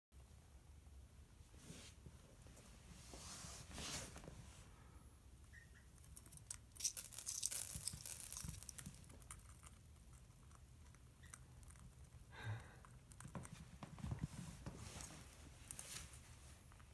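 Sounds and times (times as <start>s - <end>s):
parrot cracking seeds: 5.9s - 14.0s.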